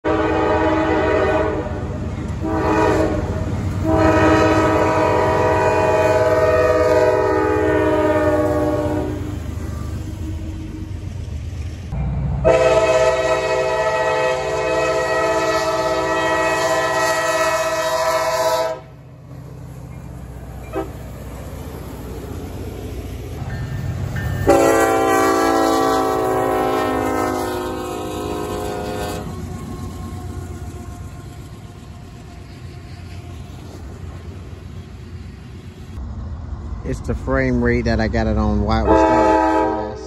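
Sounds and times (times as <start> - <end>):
locomotive air horn blasts: 0.0 - 10.5, 12.4 - 19.0, 20.6 - 21.0, 24.4 - 29.9, 38.6 - 40.0
low rumble of passing train: 0.0 - 40.0.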